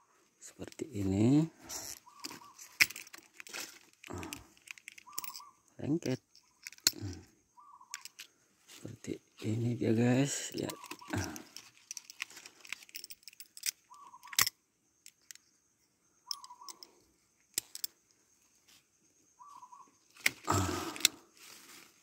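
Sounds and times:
leaves rustling: 0:20.2 - 0:22.0.

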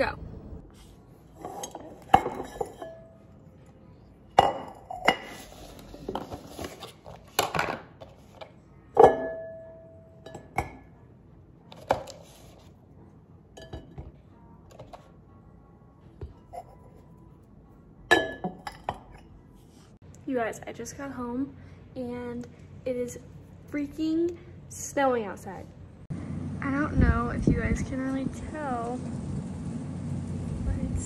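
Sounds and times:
ceramic jar clinking: 0:01.4 - 0:03.3, 0:04.4 - 0:05.6, 0:13.6 - 0:14.1, 0:18.1 - 0:19.3.

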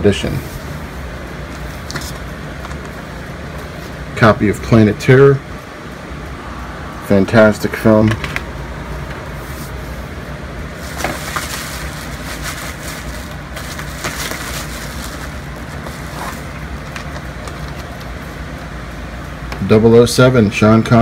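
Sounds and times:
low hum and hiss: 0:00.0 - 0:21.0
plastic packaging rustling: 0:10.7 - 0:18.1.

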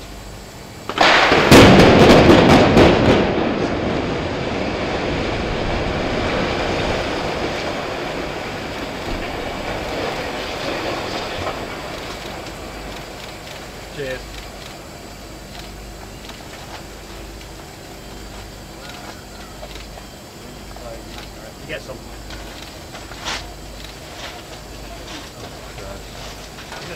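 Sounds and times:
sharp demolition blasts: 0:00.8 - 0:17.7
rumble of building collapsing: 0:01.0 - 0:15.5.

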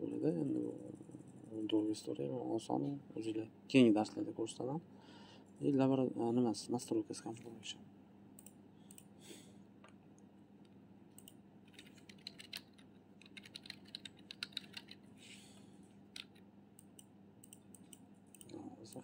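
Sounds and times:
low electrical hum: 0:00.0 - 0:19.0
keyboard typing: 0:11.2 - 0:15.1, 0:16.1 - 0:19.0.

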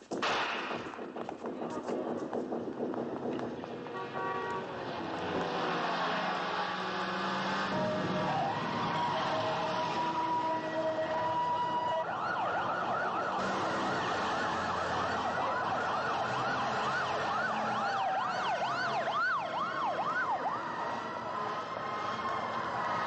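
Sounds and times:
street traffic: 0:00.0 - 0:23.0
police sirens yelping: 0:05.1 - 0:23.0.

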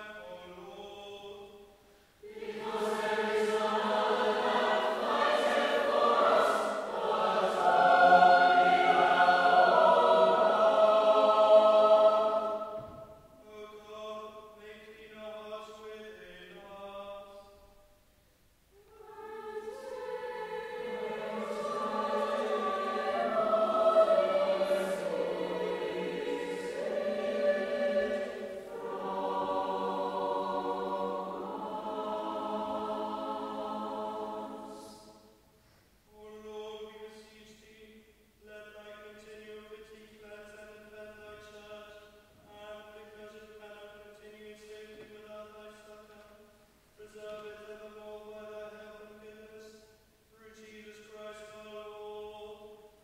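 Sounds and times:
choir singing: 0:00.0 - 0:15.8, 0:18.8 - 0:35.4.

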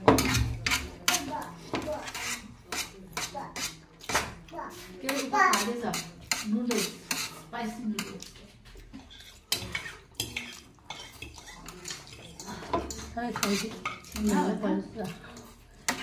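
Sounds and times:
utensils clinking against bowl: 0:00.0 - 0:16.0.

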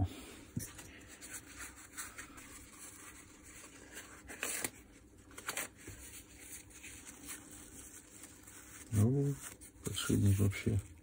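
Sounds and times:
paper napkin rubbing and rustling: 0:05.6 - 0:11.0.

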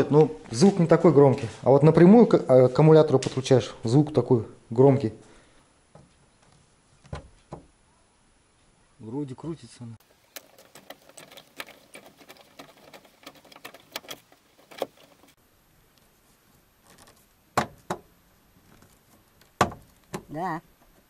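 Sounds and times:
screwdriver clicks and creaks: 0:10.3 - 0:15.4.

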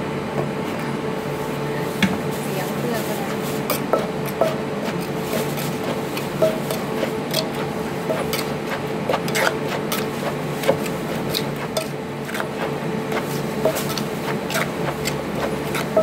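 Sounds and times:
steady hum: 0:00.0 - 0:16.0
pestle and spoon knocking mortar: 0:03.7 - 0:16.0.

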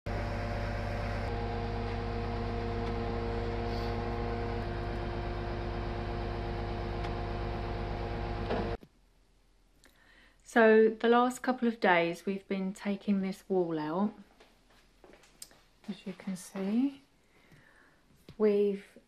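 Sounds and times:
truck diesel engine: 0:00.0 - 0:08.8
hydraulic pump droning hum: 0:00.1 - 0:08.8.

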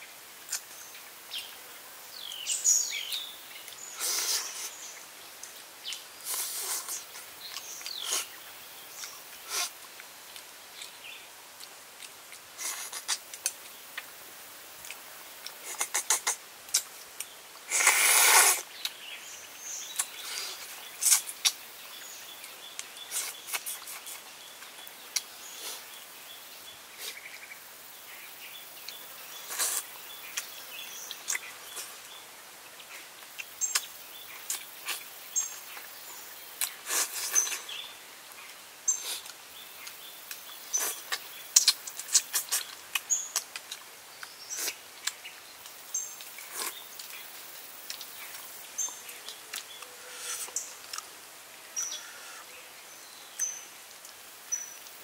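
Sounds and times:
wet chewing clicks: 0:05.4 - 0:11.0, 0:11.6 - 0:14.1, 0:14.8 - 0:19.0, 0:19.9 - 0:21.6, 0:22.7 - 0:25.8, 0:28.8 - 0:31.9, 0:33.2 - 0:35.9, 0:36.6 - 0:37.7, 0:39.0 - 0:51.1
lip smacks: 0:14.8 - 0:18.6, 0:19.9 - 0:20.4, 0:23.1 - 0:24.2, 0:39.0 - 0:47.2, 0:47.9 - 0:51.1
faint chirping: 0:51.7 - 0:53.8.

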